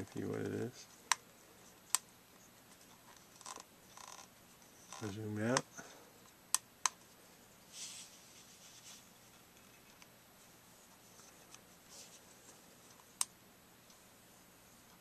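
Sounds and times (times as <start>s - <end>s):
soft rubbing noises: 7.0s - 13.2s.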